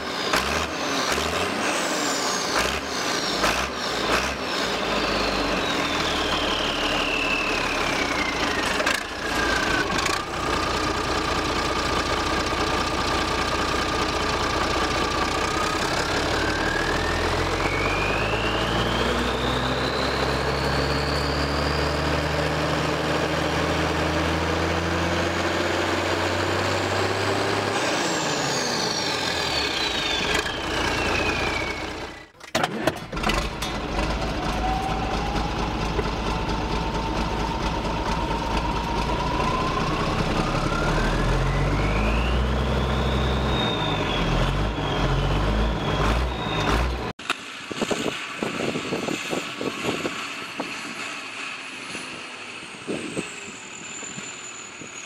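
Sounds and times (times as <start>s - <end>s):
turbocharger whistle: 0.0s - 10.3s, 15.5s - 23.0s, 26.4s - 32.4s, 34.4s - 47.1s, 52.0s - 55.0s
tractor diesel engine revving: 0.0s - 47.2s.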